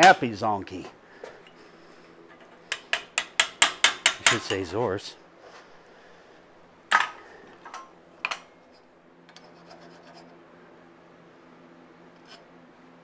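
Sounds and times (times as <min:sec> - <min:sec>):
sharp metallic clanks: 0:02.7 - 0:04.7.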